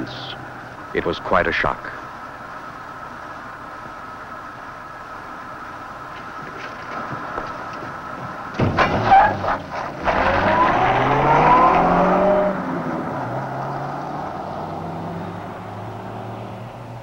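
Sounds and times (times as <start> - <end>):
car engine revving: 7.2 - 17.0
tyre squeal: 8.7 - 12.4.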